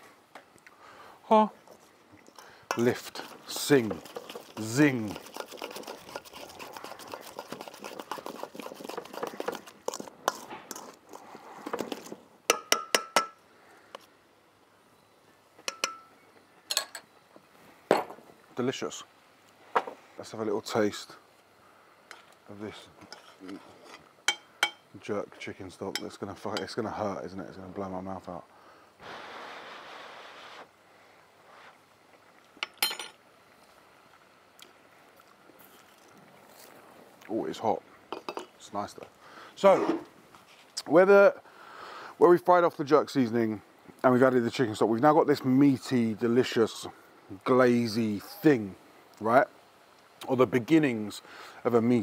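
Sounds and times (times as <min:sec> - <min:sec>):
slaw mixing wet rustling: 0:02.7 - 0:12.2
metal spoon clinking on cookware: 0:15.7 - 0:16.1, 0:16.7 - 0:17.0, 0:24.3 - 0:24.8, 0:32.6 - 0:33.2
person blowing breath: 0:28.6 - 0:30.7.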